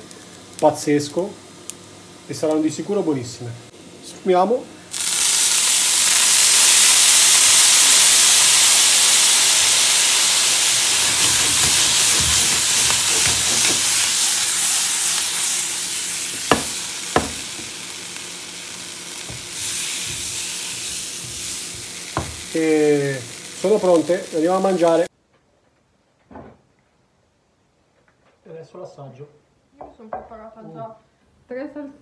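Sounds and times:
sauce sizzling in hot pan: 0:00.0 - 0:03.2, 0:04.8 - 0:25.1
taps against pan: 0:16.5 - 0:17.7.

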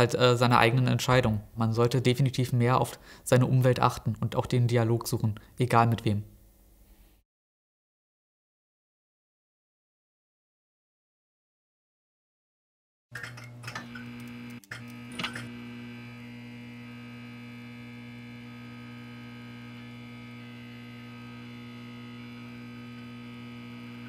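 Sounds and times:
neon sign buzzing: 0:13.5 - 0:24.0.

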